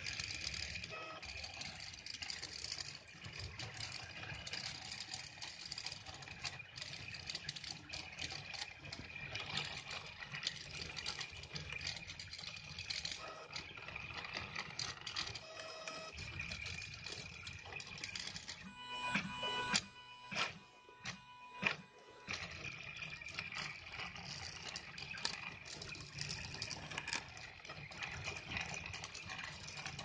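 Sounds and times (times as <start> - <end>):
small mechanical ticks: 0.0 - 18.7, 19.6 - 30.0
stepper motors whining: 14.1 - 30.0.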